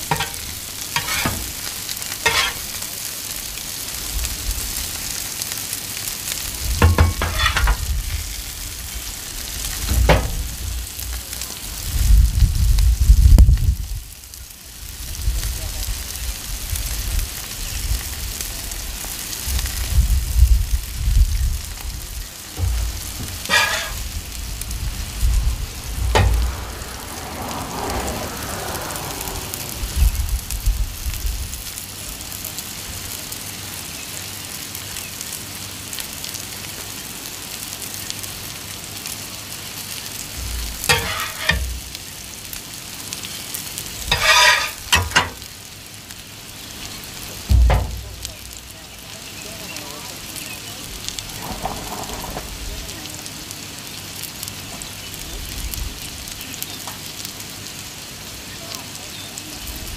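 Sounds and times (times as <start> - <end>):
food sizzling on a griddle: 0.0 - 59.9
short scrape: 1.0 - 1.5, 2.3 - 2.7, 22.7 - 24.1, 40.9 - 41.7, 44.1 - 45.2
low rumbles: 6.5 - 13.8, 19.5 - 31.7, 40.3 - 42.5, 47.1 - 49.2.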